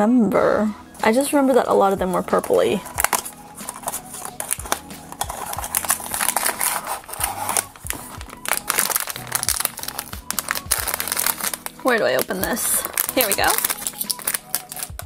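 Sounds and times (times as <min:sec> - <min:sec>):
background music: 0:00.0 - 0:15.0
foil bag crinkling and rustling: 0:01.2 - 0:15.0.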